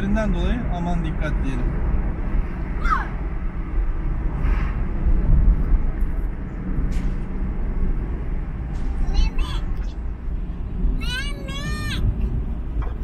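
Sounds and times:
car engine and tyre rumble: 0:00.0 - 0:13.0.

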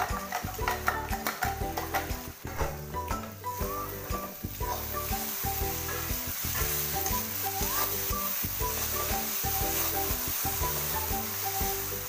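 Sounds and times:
background music: 0:00.0 - 0:12.0
food sizzling in a pan: 0:00.0 - 0:12.0
spatula scraping a pan: 0:05.7 - 0:08.2.

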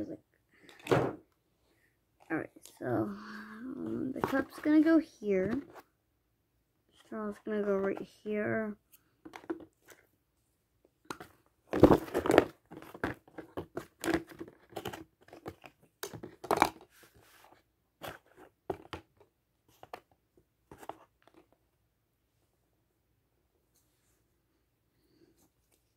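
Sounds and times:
plastic pieces on cardboard: 0:11.0 - 0:20.1.

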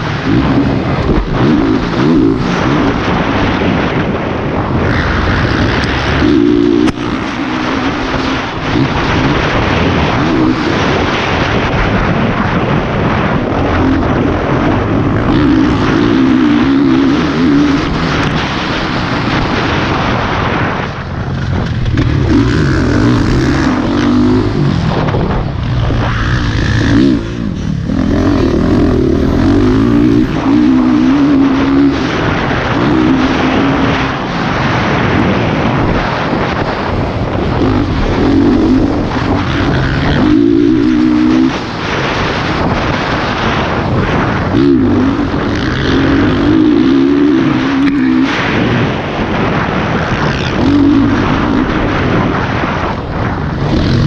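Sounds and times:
motocross bike engine revving: 0:00.0 - 0:54.0
wind noise on microphone: 0:00.0 - 0:54.0.

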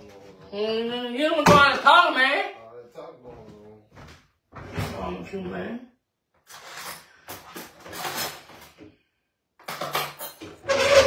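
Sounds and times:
dishes and cutlery clinking: 0:09.6 - 0:11.0.

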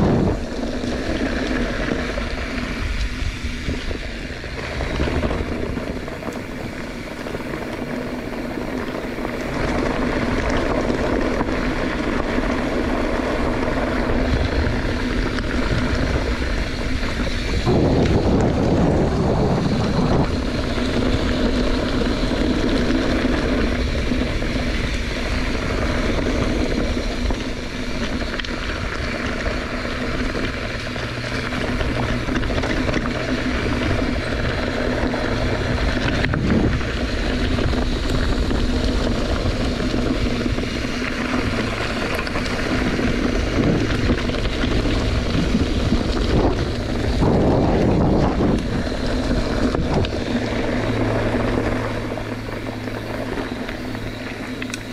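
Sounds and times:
low even hum: 0:00.0 - 0:54.9
wind buffeting microphone: 0:00.0 - 0:54.9.

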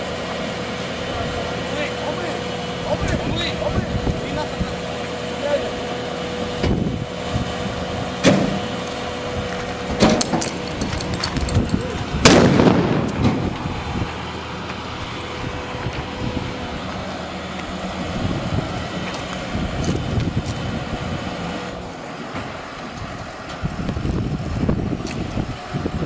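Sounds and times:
loud bang: 0:12.2 - 0:13.5.

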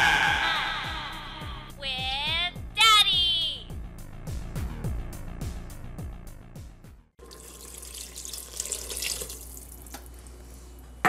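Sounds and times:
water splashing into sauce: 0:07.2 - 0:09.9
water pouring into pot: 0:07.2 - 0:10.0.

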